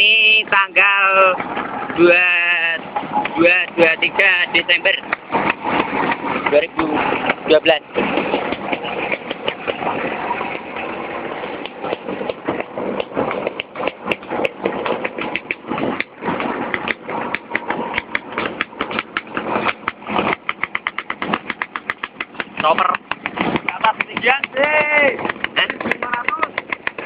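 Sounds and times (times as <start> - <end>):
scooter engine running: 0.0 - 27.0.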